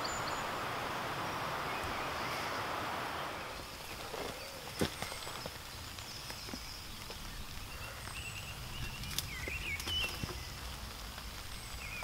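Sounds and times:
movement in undergrowth: 3.4 - 12.0.

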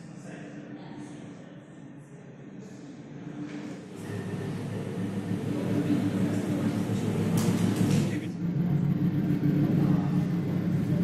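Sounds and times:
low droning hum: 3.2 - 11.0.

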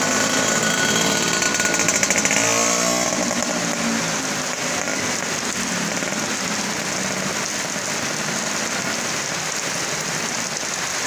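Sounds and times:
scooter engine hum: 0.0 - 7.7
heavy rain on road and roofs: 0.0 - 11.0.

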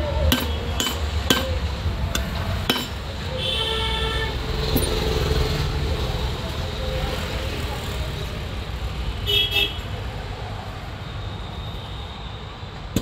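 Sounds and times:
low traffic rumble: 0.0 - 13.0
vehicle horn: 3.3 - 4.4, 9.3 - 9.9.

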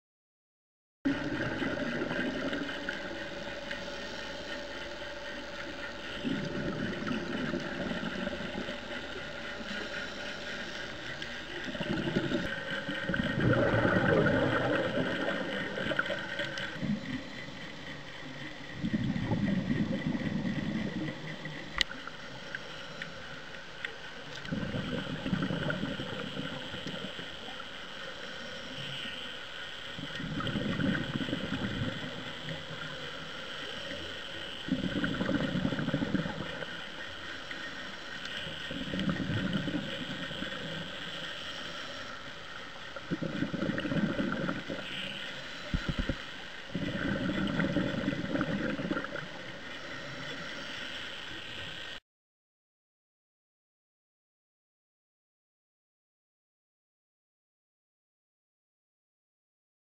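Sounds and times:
diver exhaling bubbles: 10.8 - 17.2, 18.8 - 21.4, 24.4 - 27.1, 30.1 - 32.2, 34.7 - 36.7, 38.7 - 40.9, 43.0 - 44.9, 45.6 - 49.4.

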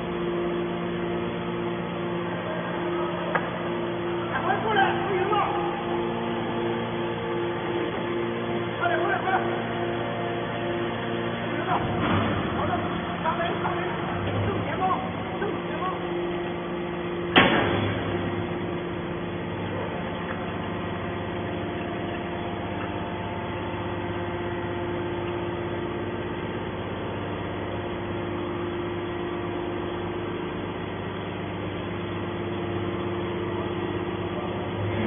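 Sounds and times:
hydraulic baler humming: 0.0 - 35.0
sharp bang: 17.3 - 18.2.

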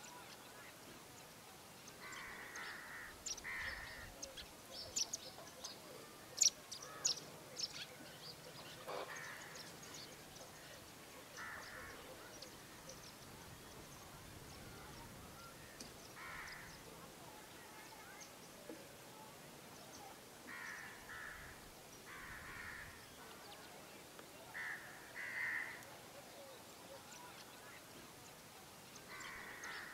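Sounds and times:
birds chirping: 0.0 - 29.9
longer lower bird calls: 24.5 - 29.9.

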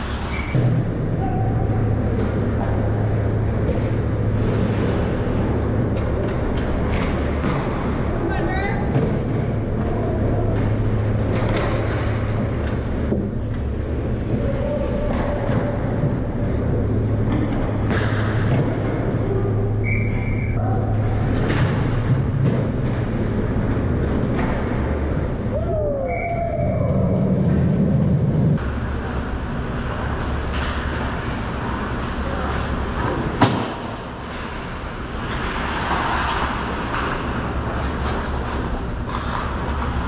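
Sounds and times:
steady low rumble: 0.0 - 33.0
skate blades scraping ice: 1.7 - 8.2, 28.8 - 40.0.

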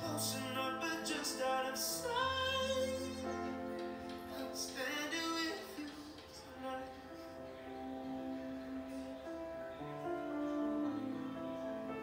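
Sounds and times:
man singing ballad: 0.0 - 7.4
piano: 0.0 - 12.0.

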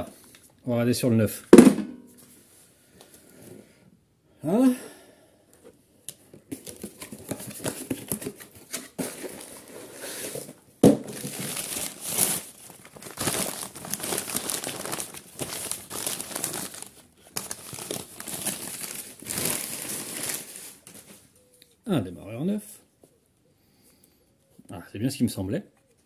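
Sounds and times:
sharp knock: 1.6 - 2.1
packing paper crumpling: 6.5 - 21.4.

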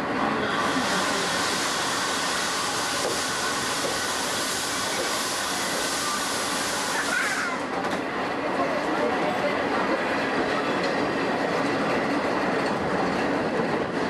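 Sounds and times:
steam train rolling slowly: 0.0 - 14.0.

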